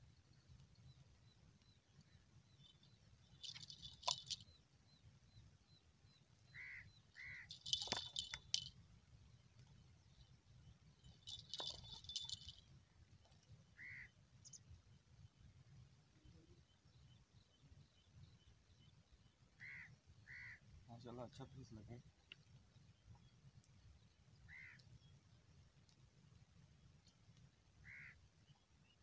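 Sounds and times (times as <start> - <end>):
bird chirps: 0.2 - 8.7
small bells jingling: 2.6 - 4.5, 7.5 - 8.8, 11.0 - 12.7.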